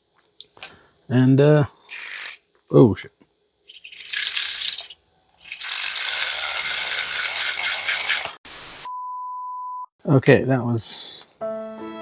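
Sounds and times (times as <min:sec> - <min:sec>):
milk frother whirring: 0:03.7 - 0:08.4.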